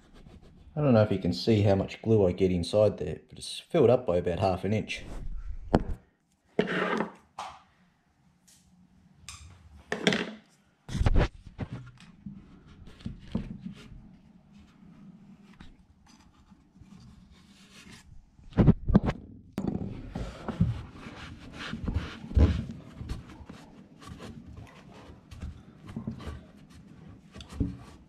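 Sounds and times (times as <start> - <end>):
faint scraping on wood: 6.6 - 7.2
cloth rag rubbing: 20.5 - 25.5.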